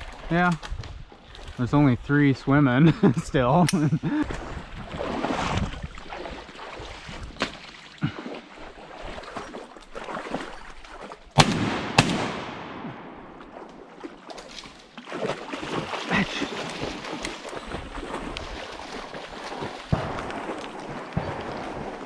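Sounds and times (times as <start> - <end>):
shotgun shots: 11.4 - 13.5, 19.9 - 22.0.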